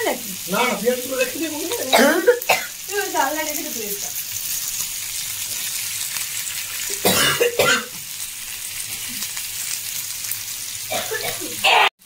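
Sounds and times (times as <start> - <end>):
chicken sizzling in pan: 0.0 - 12.0
person coughing: 1.9 - 2.7, 7.0 - 8.0, 10.9 - 11.9.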